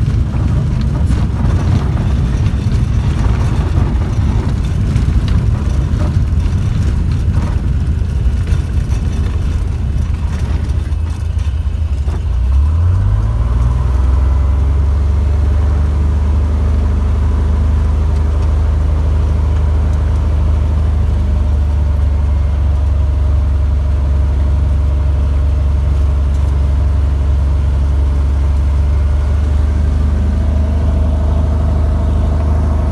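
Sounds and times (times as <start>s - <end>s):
rattles and knocks: 0.0s - 12.6s
airplane engine and propeller: 0.0s - 32.9s.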